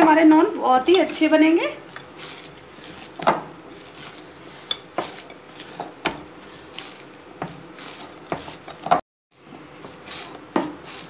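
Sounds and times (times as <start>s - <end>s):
hands kneading dough in glass bowl: 1.9s - 9.0s.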